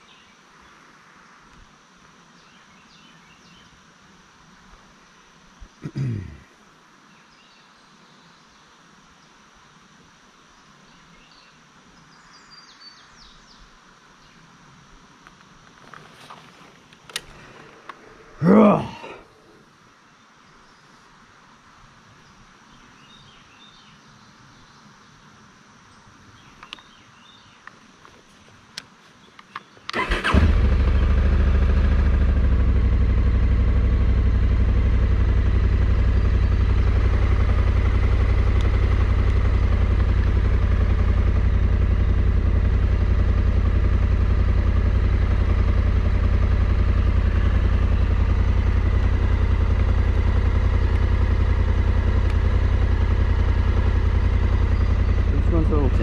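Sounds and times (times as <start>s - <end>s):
motorcycle engine starting: 16.2s - 19.2s, 29.9s - 56.0s
motorcycle engine idling: 29.9s - 56.0s.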